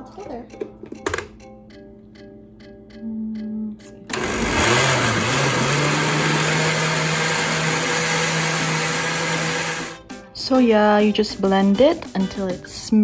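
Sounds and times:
blender running: 0:04.1 - 0:10.0.

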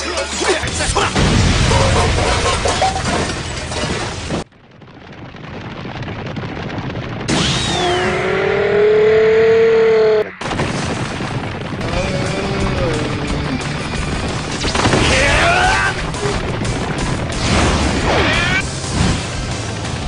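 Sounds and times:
heavy cartoon crash with rumbling: 0:00.7 - 0:09.8, 0:10.4 - 0:20.0.

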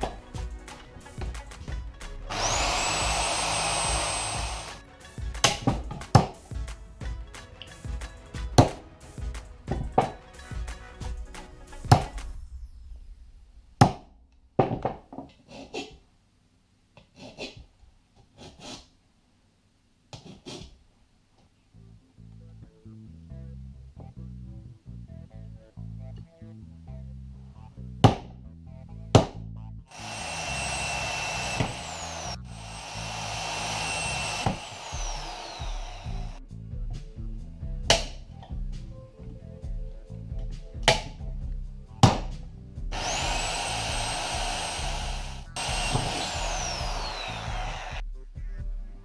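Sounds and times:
bass guitar music: 0:00.0 - 0:05.5, 0:21.8 - 0:49.0
electric drill boring: 0:02.3 - 0:04.8, 0:29.9 - 0:36.4, 0:42.9 - 0:48.0.

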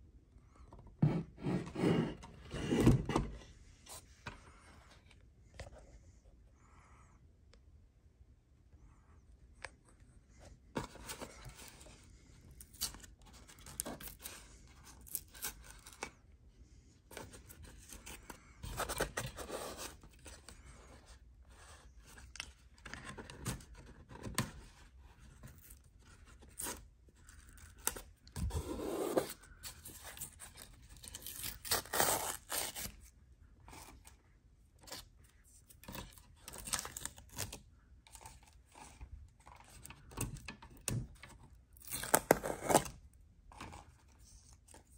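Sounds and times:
packaging tearing and rustling: 0:28.6 - 0:33.1, 0:41.8 - 0:42.9.

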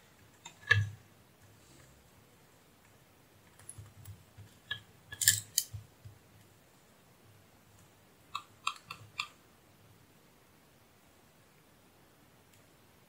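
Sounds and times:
clicks and taps of test probes: 0:08.4 - 0:09.4.

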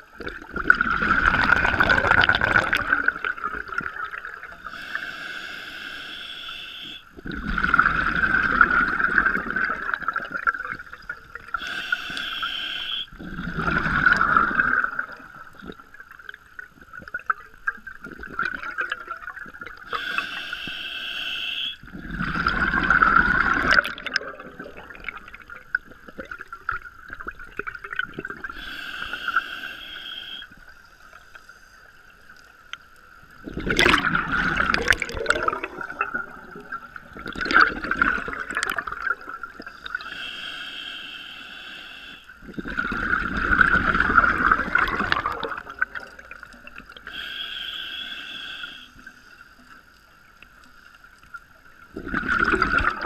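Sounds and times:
exhaled bubbles burbling: 0:00.0 - 0:04.7, 0:07.2 - 0:11.6, 0:13.1 - 0:20.0, 0:21.8 - 0:28.6, 0:33.3 - 0:40.0, 0:42.4 - 0:47.1, 0:51.8 - 0:53.0
regulator inhale hiss: 0:04.6 - 0:07.1, 0:11.5 - 0:13.1, 0:19.9 - 0:21.8, 0:28.5 - 0:32.0, 0:39.7 - 0:42.4, 0:47.0 - 0:49.7.

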